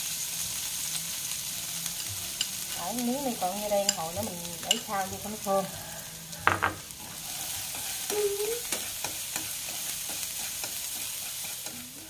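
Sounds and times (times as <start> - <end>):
aromatics sizzling in hot oil: 0.0 - 12.0
chopsticks scraping a wok: 7.0 - 12.0.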